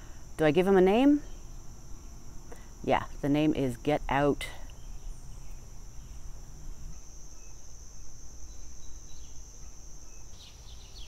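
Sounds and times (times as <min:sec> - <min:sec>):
insects chorus: 0:00.0 - 0:11.0.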